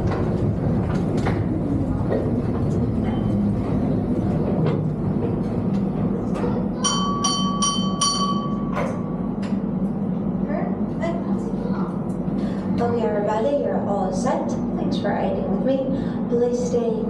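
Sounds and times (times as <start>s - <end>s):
rail clicks: 0.0s - 10.0s
train rumbling on rails: 0.0s - 17.0s
high pulsing ringing tone: 6.8s - 8.8s.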